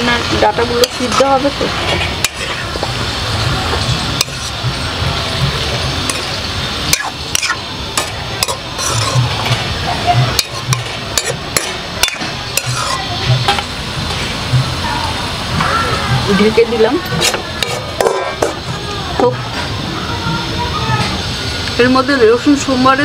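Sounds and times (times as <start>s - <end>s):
vegetables sizzling in oil: 0.0s - 23.0s
metal spoon scraping a pan: 0.4s - 2.9s, 3.7s - 4.8s, 5.5s - 9.6s, 10.2s - 14.2s, 17.1s - 18.6s.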